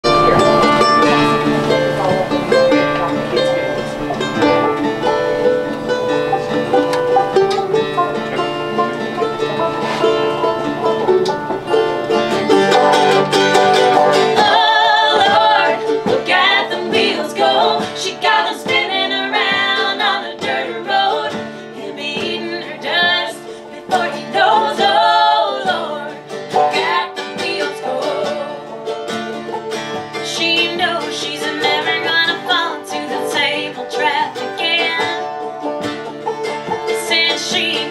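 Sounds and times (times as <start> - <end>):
mandolin picking: 0.0 - 37.9
strummed acoustic guitar: 0.0 - 37.9
women singing together: 14.1 - 35.4, 36.8 - 37.9.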